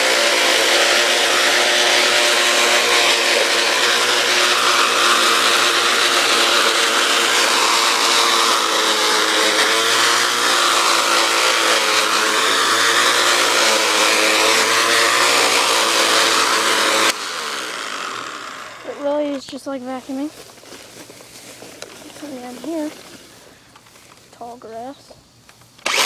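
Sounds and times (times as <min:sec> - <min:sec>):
string trimmer motor whining: 0:00.0 - 0:19.4, 0:25.8 - 0:26.0.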